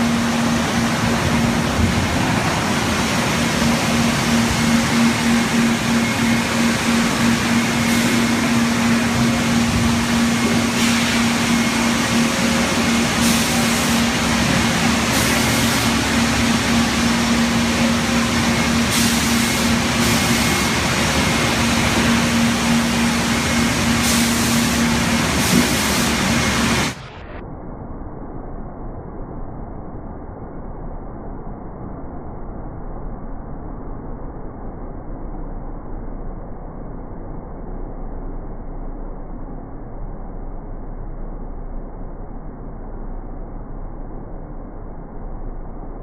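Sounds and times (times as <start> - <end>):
industrial machinery humming: 0.0 - 27.4.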